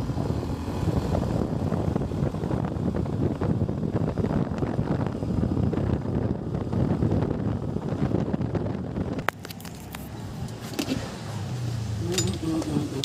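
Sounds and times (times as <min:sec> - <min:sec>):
motorbike running: 0:00.0 - 0:13.0
wind buffeting microphone: 0:00.0 - 0:13.0.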